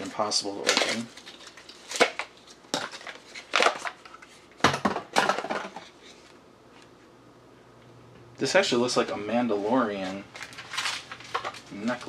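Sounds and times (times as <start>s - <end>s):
packaging crackling and crunching: 0.0s - 4.1s, 10.3s - 12.0s.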